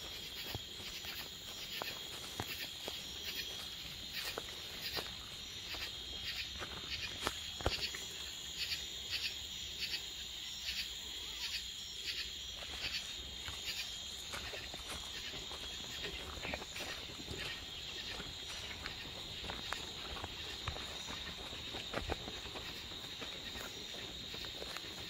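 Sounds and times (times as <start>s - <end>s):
night insects chirping: 0.0s - 25.0s.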